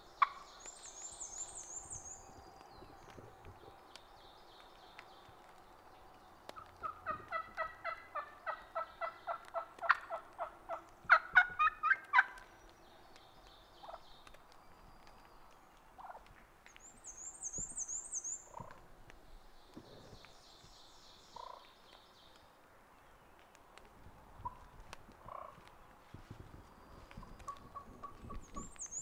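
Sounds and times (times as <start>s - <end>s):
small bird singing: 0.0s - 9.4s, 12.4s - 18.7s, 26.5s - 29.0s
turkey hen yelping: 6.8s - 12.4s.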